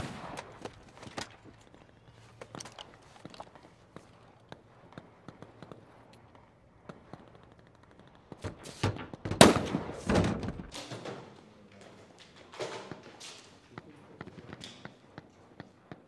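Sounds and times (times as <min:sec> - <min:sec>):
gunshots: 0:00.0 - 0:01.2, 0:06.8 - 0:11.3
faint scattered clicks: 0:00.2 - 0:08.4, 0:11.3 - 0:16.0.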